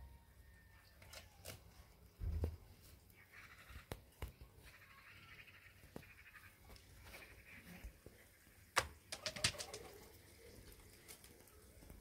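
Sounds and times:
faint bird chirping: 2.7 - 8.7.

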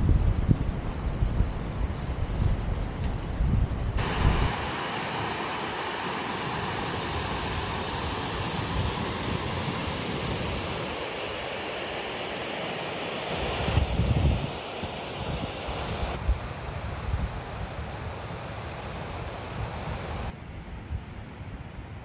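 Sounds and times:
wind buffeting microphone: 0.0 - 11.4, 13.5 - 20.3
rushing flowing water: 4.0 - 20.3.

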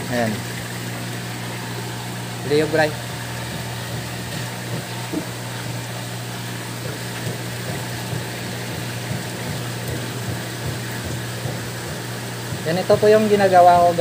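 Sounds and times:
aquarium pump humming: 0.0 - 14.0
circulating water hiss: 0.0 - 14.0.

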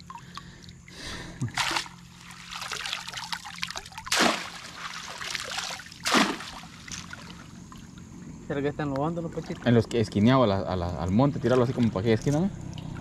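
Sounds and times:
water splashes: 0.0 - 8.1, 9.2 - 13.0
water trickling and dripping: 0.0 - 8.3.

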